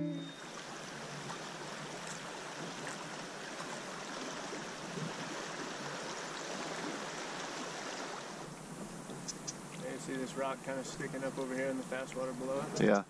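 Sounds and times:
river water rushing: 0.0 - 12.9.

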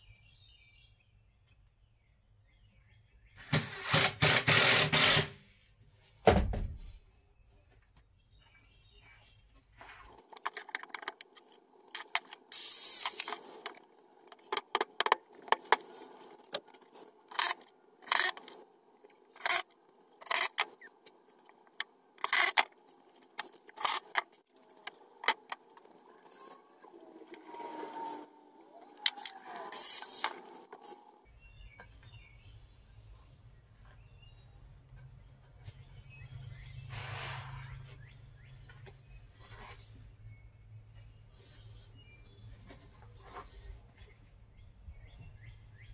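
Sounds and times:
hands and tools handling material: 9.5 - 31.3.

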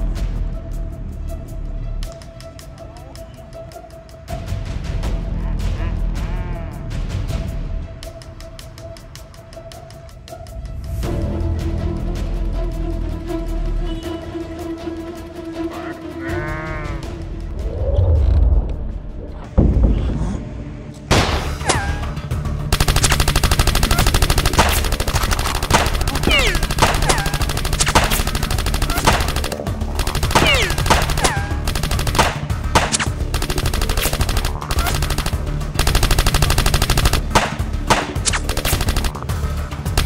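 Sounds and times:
background music with bass: 21.1 - 40.0
rapid gunfire-like shots: 22.7 - 40.0.

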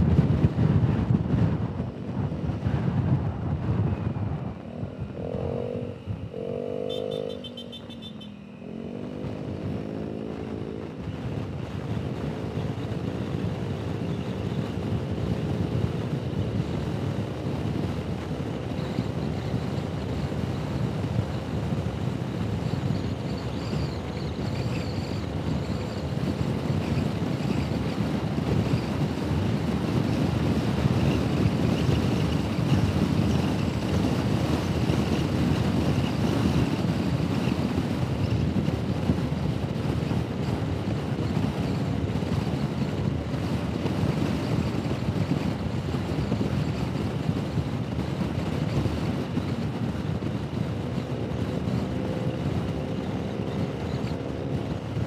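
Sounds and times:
wind rushing over microphone: 0.0 - 55.0
scooter engine running: 4.6 - 10.7.

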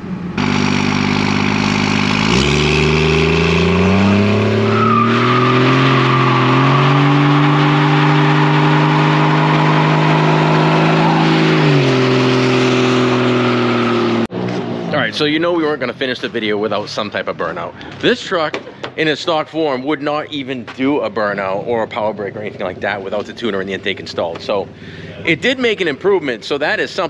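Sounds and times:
diesel engine revving hard: 0.0 - 15.4
tyres spinning and squealing: 3.1 - 14.3.

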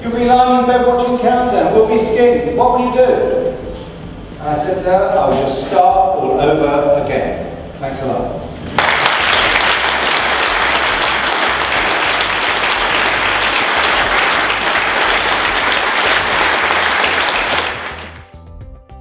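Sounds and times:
music: 0.0 - 19.0
audience applauding: 8.8 - 18.3.

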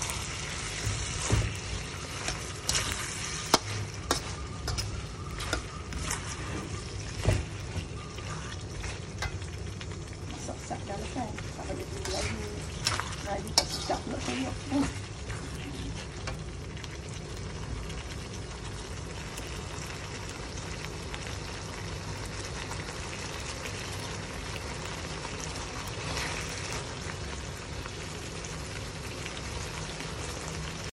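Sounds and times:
spatula scraping a pan: 0.0 - 9.6, 10.4 - 16.4
food sizzling in a wok: 0.0 - 30.9.

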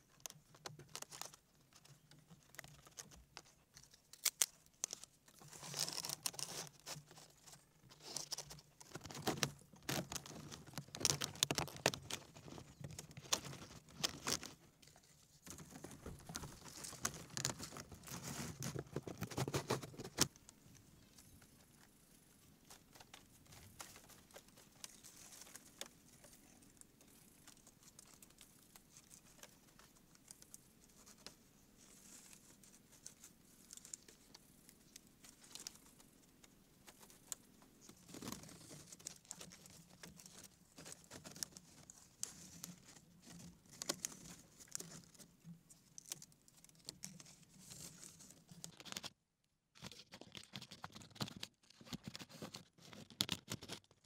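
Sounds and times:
leaves rustling and crinkling: 0.0 - 49.2
clicks and taps on bamboo: 0.1 - 20.6.

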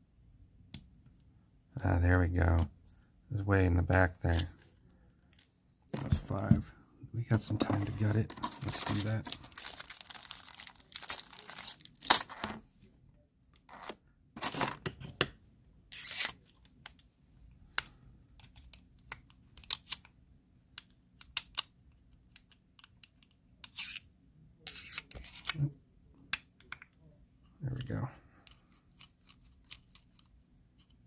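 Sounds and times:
screwdriver clicking and scraping metal: 15.9 - 16.6, 22.3 - 25.6, 28.4 - 31.0.

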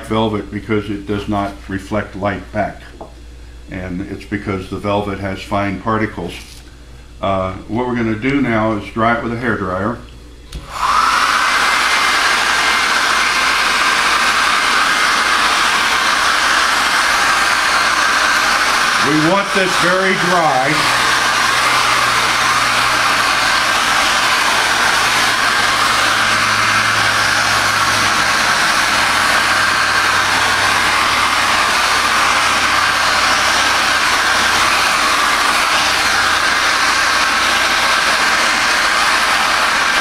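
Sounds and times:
hair dryer running: 10.5 - 40.0.

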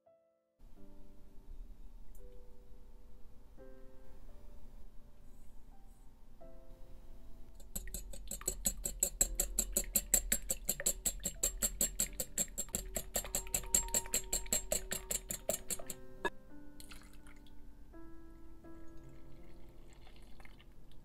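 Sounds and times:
soft piano music: 0.0 - 21.0
whisk beating in glass bowl: 7.6 - 16.3.

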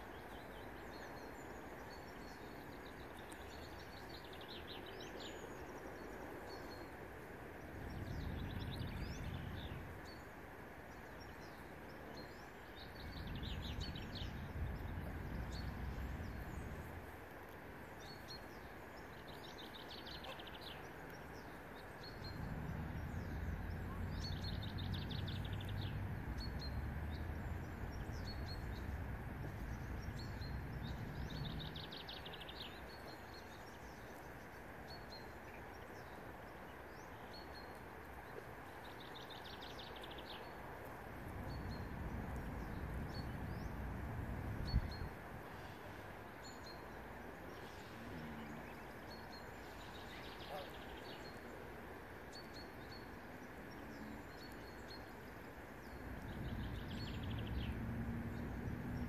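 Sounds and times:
low rumble: 7.8 - 9.9, 13.0 - 17.1, 22.0 - 32.0, 41.2 - 45.2.

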